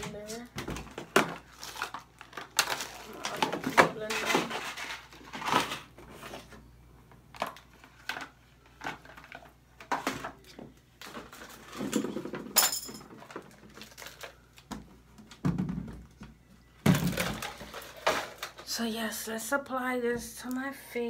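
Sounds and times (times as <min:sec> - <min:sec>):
plastic containers knocking and clicking: 0:14.6 - 0:18.6.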